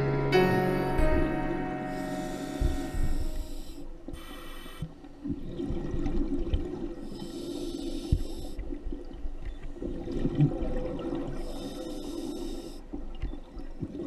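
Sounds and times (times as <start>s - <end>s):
hissing regulator breaths: 1.8s - 5.0s, 7.0s - 8.6s, 11.4s - 12.9s
underwater bubbling and crackle: 1.9s - 14.0s.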